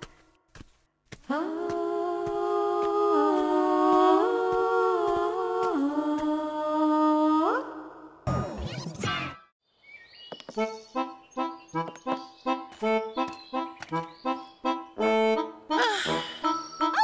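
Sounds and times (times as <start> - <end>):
humming vocal-like chord: 1.3 - 7.9.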